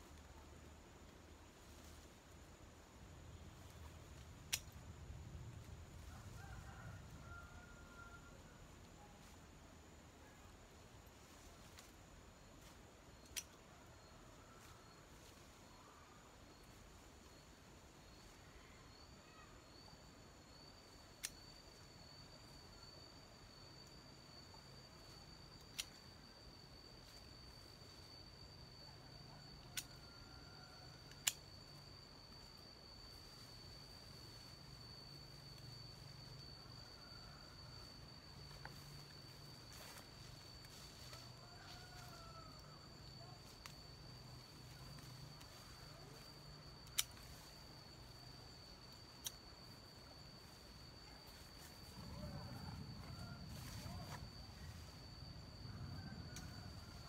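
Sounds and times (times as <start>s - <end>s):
high insect trill: 0.0s - 57.0s
plant stems snapping: 4.5s - 4.7s
low hum: 30.8s - 57.0s
sharp clicks: 31.0s - 31.5s, 46.8s - 47.3s, 49.2s - 49.4s.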